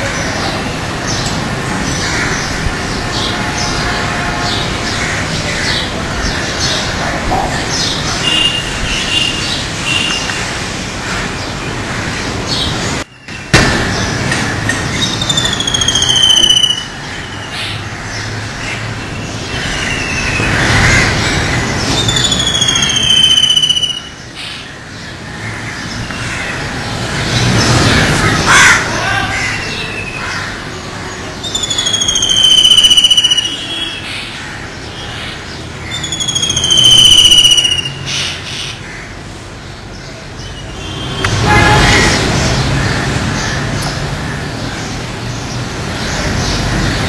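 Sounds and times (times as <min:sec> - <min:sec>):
steady background noise: 0:00.0 - 0:47.0
kingfisher shrill screeches: 0:15.2 - 0:16.9, 0:22.0 - 0:24.1, 0:31.5 - 0:33.8, 0:36.0 - 0:38.0.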